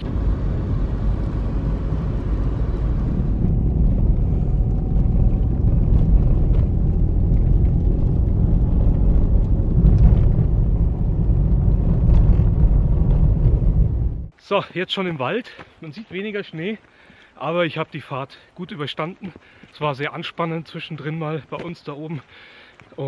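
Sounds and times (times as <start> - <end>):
car engine and tyre rumble: 0.0 - 14.4.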